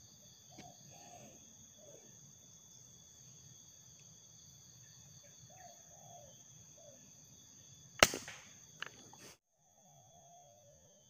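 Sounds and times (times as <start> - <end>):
air rifle shot: 8.0 - 8.5.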